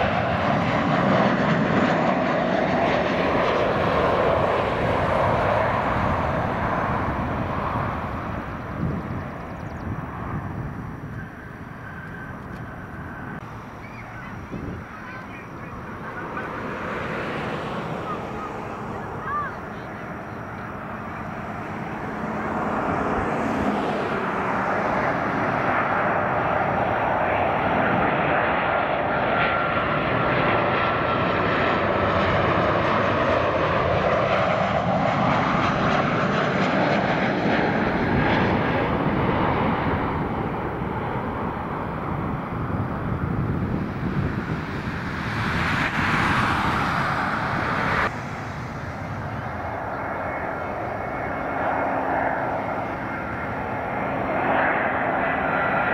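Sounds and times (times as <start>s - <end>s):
jet engines roaring overhead: 0.0s - 55.9s
car passing: 2.4s - 28.2s, 37.8s - 55.9s
faint high whine: 45.8s - 55.2s.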